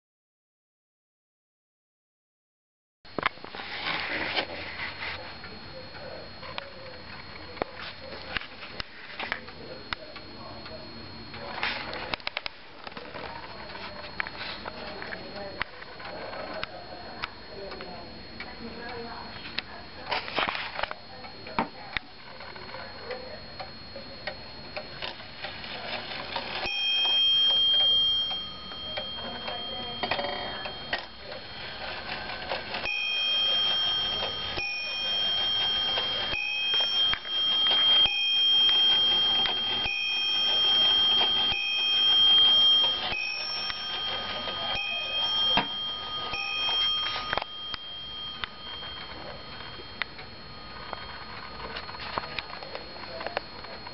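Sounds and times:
clock bell striking: 26.1s - 51.2s.

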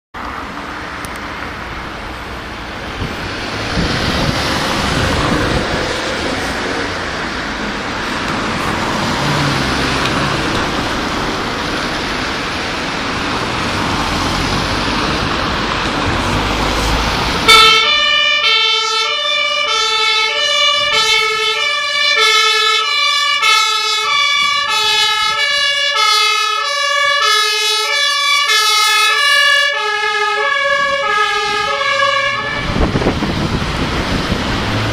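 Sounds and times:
rushing noise: 0.4s - 18.1s, 30.7s - 34.9s
two-tone fire siren: 17.1s - 33.8s.

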